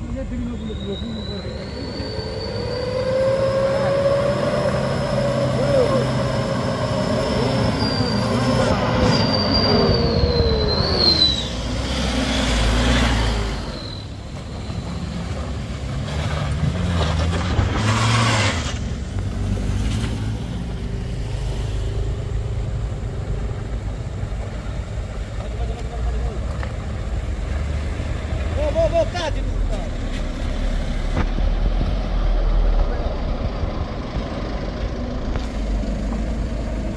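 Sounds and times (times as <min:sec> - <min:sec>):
vehicle engines running: 0:00.0 - 0:36.9
high squeal sliding in pitch: 0:00.1 - 0:15.4.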